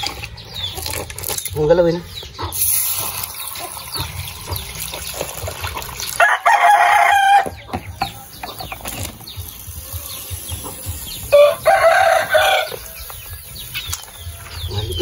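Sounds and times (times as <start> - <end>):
small birds chirping: 0.0 - 15.0
water poured over hot metal: 2.6 - 6.5
rooster crowing: 6.2 - 7.5, 11.3 - 13.1.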